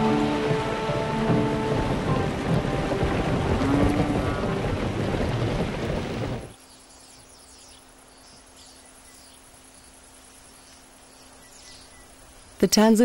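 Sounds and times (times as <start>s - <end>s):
herd crossing river rushing: 0.0s - 13.0s
high insect trill: 6.5s - 12.7s.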